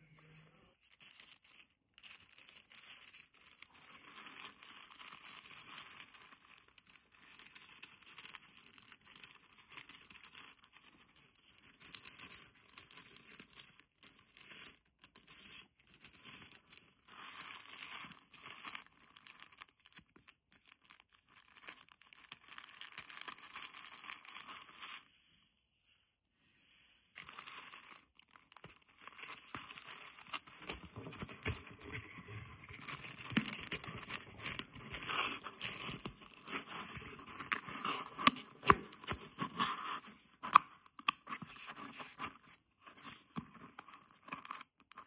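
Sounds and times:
tissue paper crinkling: 0.7 - 25.1, 27.2 - 45.0.

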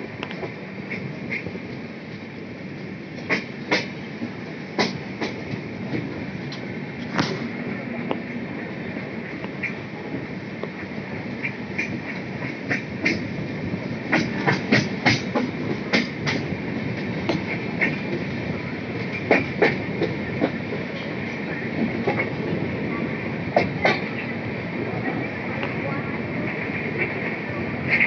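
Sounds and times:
train running rumble: 0.0 - 28.0
train wheels clacking: 3.2 - 7.5, 10.6 - 22.4, 23.5 - 24.3.

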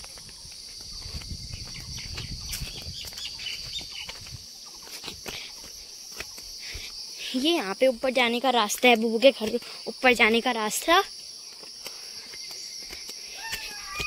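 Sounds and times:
footsteps: 0.0 - 7.5, 11.5 - 14.0
insects chirring: 0.0 - 14.0.

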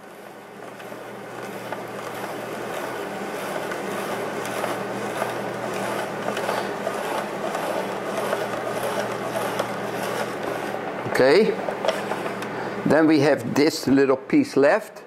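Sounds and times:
vegetable slicer crunching: 0.0 - 10.9, 11.6 - 12.5.

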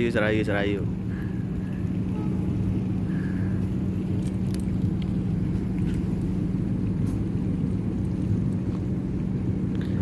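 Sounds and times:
diesel train idling hum: 0.0 - 10.0.

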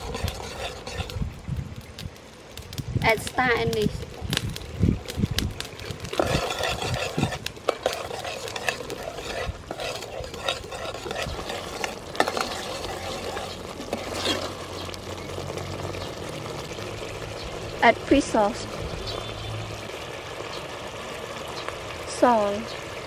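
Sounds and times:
ladle scraping metal pot: 0.0 - 1.4, 5.6 - 17.2.

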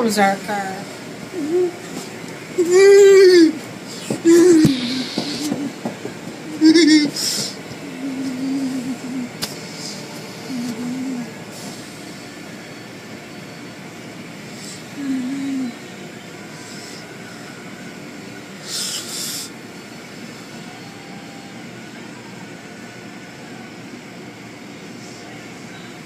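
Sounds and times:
car wash machinery rumbling: 0.0 - 12.5
low wavering hum: 7.8 - 13.0.

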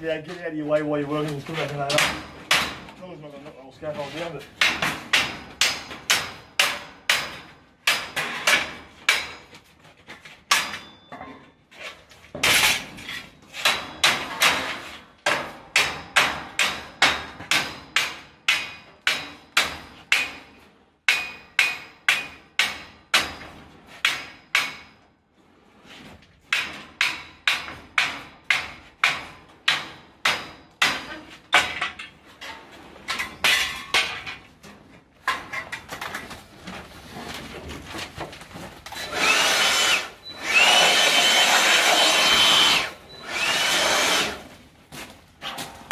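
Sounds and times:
hammer striking steel scaffolding: 1.5 - 3.0, 4.5 - 9.7, 10.4 - 11.3, 12.3 - 25.2, 26.5 - 32.2.

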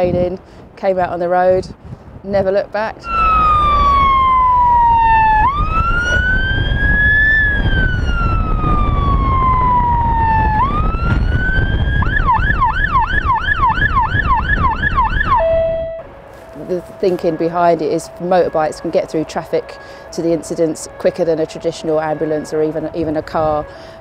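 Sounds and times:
emergency siren wailing and yelping: 3.0 - 16.2
motorcycle rumble: 3.0 - 17.4.

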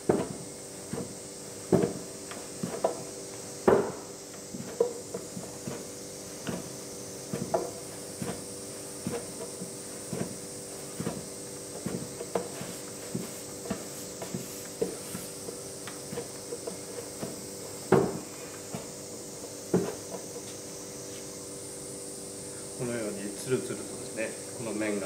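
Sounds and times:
dough thumping in wooden bowl: 1.7 - 8.4.

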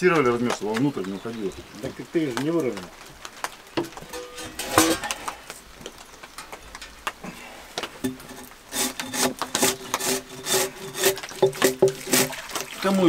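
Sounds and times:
rhythmic scraping strokes on wood: 7.9 - 12.7
knocks on timber: 11.4 - 12.3.

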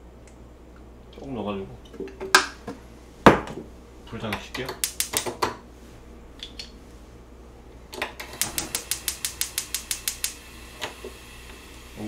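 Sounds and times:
gas stove igniter clicking: 4.7 - 5.4, 7.9 - 11.7.

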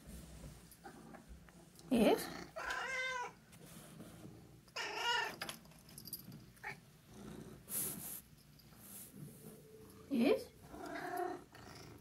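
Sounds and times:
cat meowing: 2.6 - 3.4, 4.8 - 5.4.

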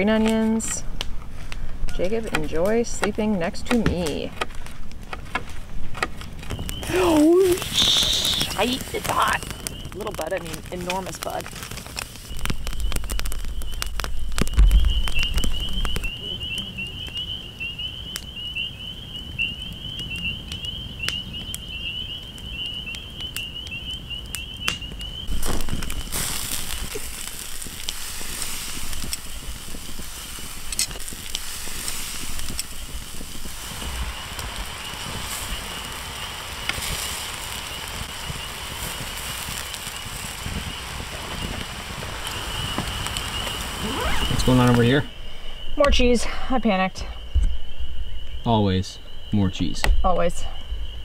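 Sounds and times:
campfire crackling with pops: 0.0 - 48.4
steaks sizzling on a grate: 6.5 - 16.1, 25.2 - 45.0.

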